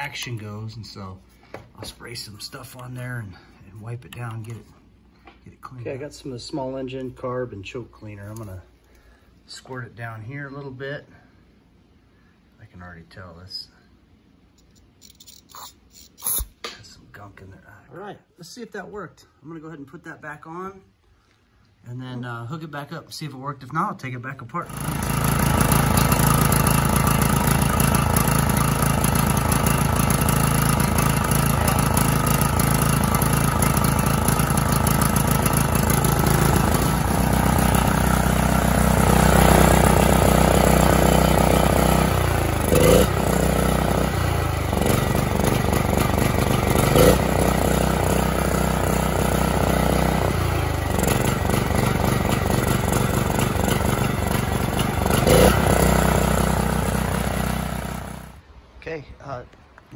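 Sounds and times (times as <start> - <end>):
generator engine running: 24.6 - 58.4.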